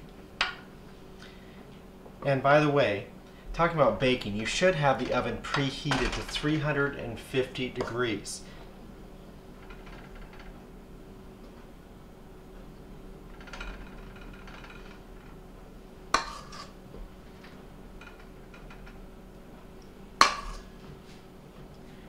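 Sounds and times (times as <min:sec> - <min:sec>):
spoon scraping batter: 0:16.2 - 0:16.8.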